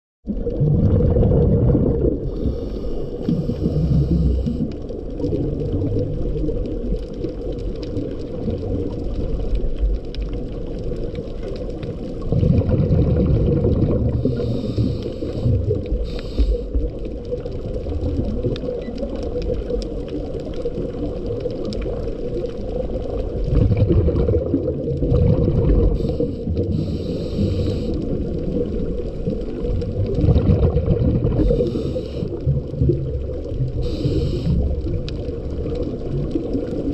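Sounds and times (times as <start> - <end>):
exhaled bubbles rumbling: 0.2 - 36.9
muffled underwater drone: 0.3 - 36.9
regulator hiss: 14.2 - 16.8, 26.0 - 28.2, 31.4 - 32.4, 33.8 - 34.8.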